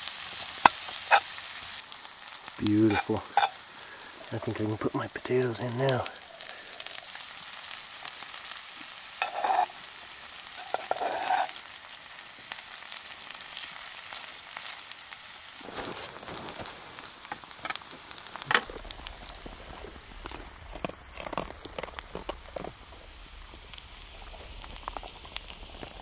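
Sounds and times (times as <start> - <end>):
potatoes sizzling in a pan: 0.0 - 26.0
spatula scraping a pan: 2.8 - 3.6, 9.0 - 11.6.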